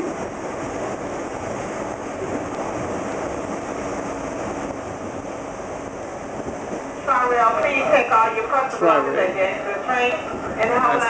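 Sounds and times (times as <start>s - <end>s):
rumble of wheels on rail: 0.0s - 11.0s.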